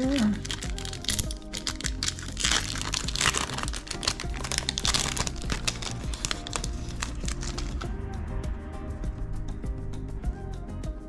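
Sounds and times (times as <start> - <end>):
card pack wrapper crinkling: 0.0 - 7.9
background music: 0.0 - 11.0.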